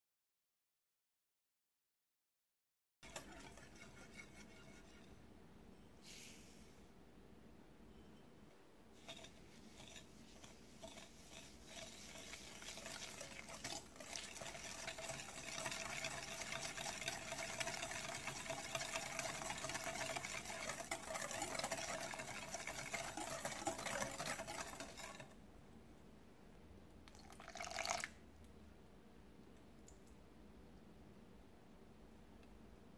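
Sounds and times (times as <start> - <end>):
whisk beating in glass bowl: 3.0 - 5.2, 9.0 - 25.4
water pouring into bowl: 10.8 - 25.3, 27.1 - 28.2.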